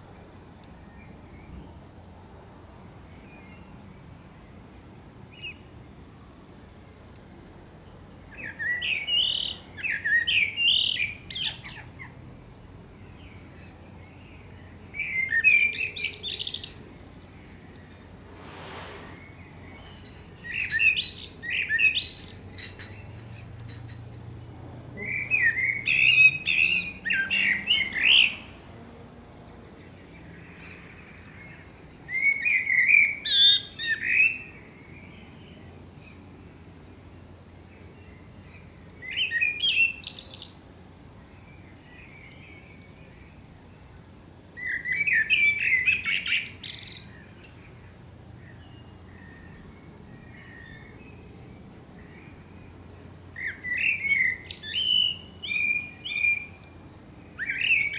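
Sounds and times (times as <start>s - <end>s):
blackbird singing: 8.3s - 12.2s, 13.0s - 17.7s, 19.2s - 28.6s, 37.9s - 40.6s, 44.6s - 47.8s, 53.3s - 56.6s, 57.4s - 57.9s.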